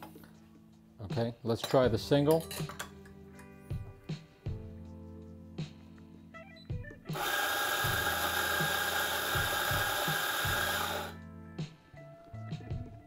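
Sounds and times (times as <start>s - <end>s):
coffee grinder whining: 7.1s - 11.2s.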